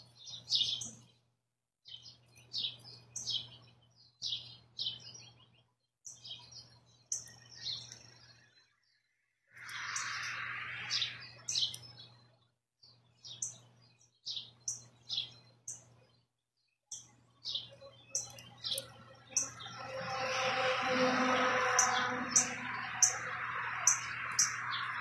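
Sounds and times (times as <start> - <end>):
small birds chirping: 0.0 - 20.3, 21.4 - 25.0
steady rushing noise: 9.6 - 11.6.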